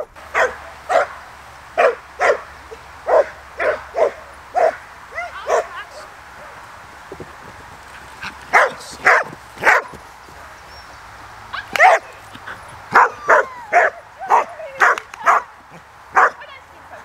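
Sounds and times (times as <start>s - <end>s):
dog barking sharply: 0.4s - 1.1s, 8.5s - 9.9s, 16.2s - 16.4s.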